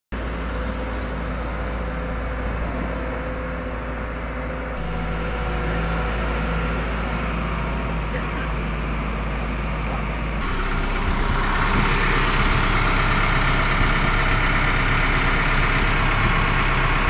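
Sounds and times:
diesel engine running: 0.2 - 17.0.

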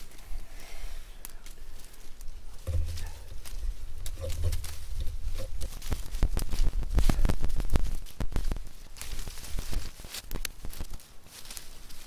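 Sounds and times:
dry branches snapping: 0.0 - 12.0
leaves rustling: 0.0 - 12.0.

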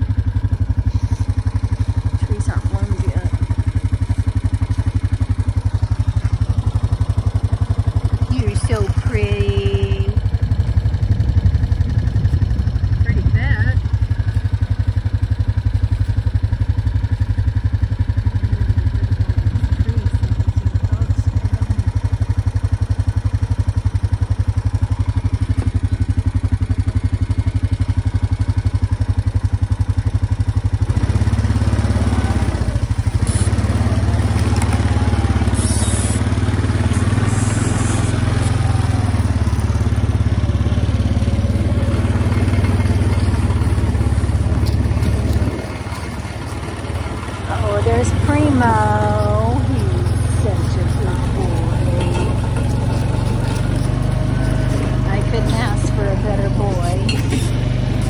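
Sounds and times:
small engine running: 0.0 - 58.0.

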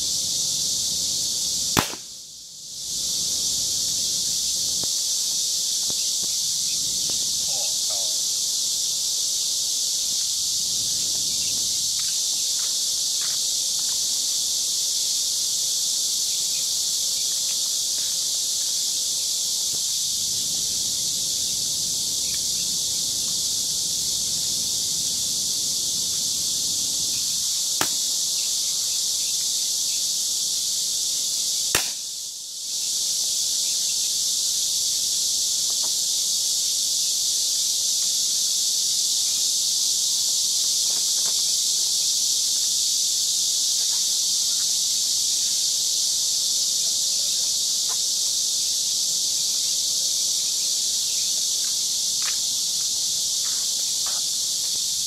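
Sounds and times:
high-pitched insect chorus: 0.0 - 55.0
revolver shot: 1.8 - 2.0.

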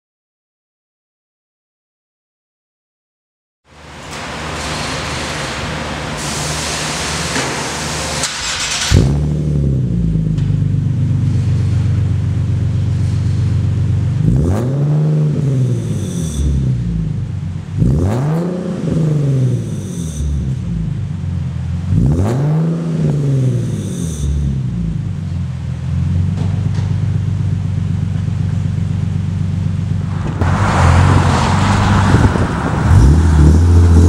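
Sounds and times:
car engine idling and revving: 3.8 - 34.0
hiss: 4.4 - 8.9.

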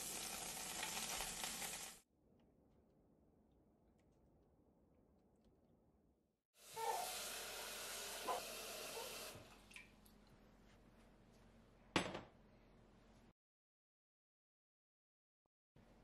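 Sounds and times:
tap water running into pot: 0.0 - 2.0, 6.8 - 9.9.

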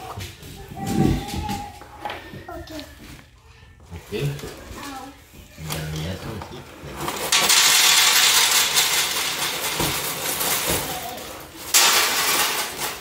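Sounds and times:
dry cereal pouring into metal pan: 7.2 - 13.0.

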